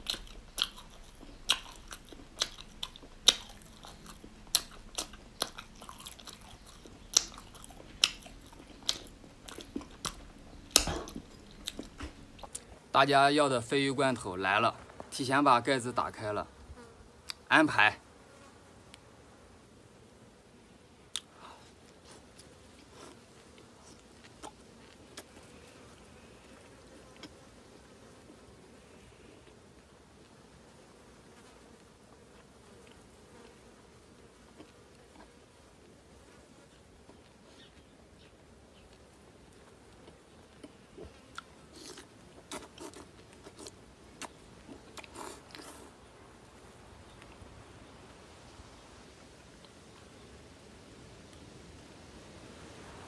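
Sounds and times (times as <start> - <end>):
wet mouth clicks and smacks: 0.0 - 12.8.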